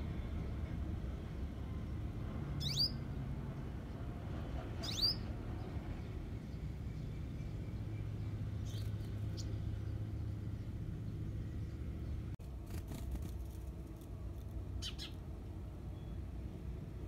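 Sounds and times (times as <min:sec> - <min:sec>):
high bird chirps: 0:02.6 - 0:03.0, 0:04.8 - 0:05.3, 0:14.8 - 0:15.2.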